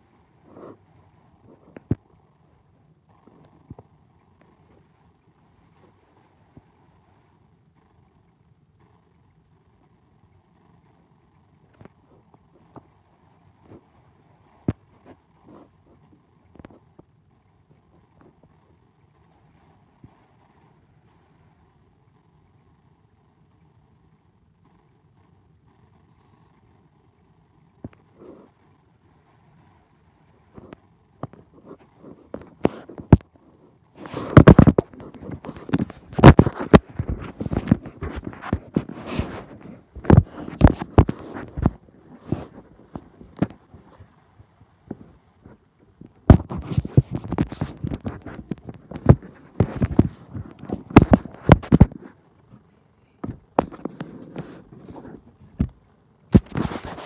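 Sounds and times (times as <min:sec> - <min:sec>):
phone being handled: 0:30.6 - 0:33.3, 0:34.0 - 0:44.0, 0:44.9 - 0:52.1, 0:53.2 - 0:57.0
rubbing and knocking: 0:34.0 - 0:44.0, 0:44.9 - 0:52.1, 0:53.2 - 0:57.0.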